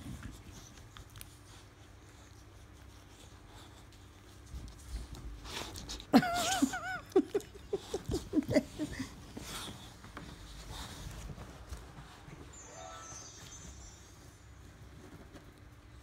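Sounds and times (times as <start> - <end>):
rustling of bedding: 7.8 - 16.0.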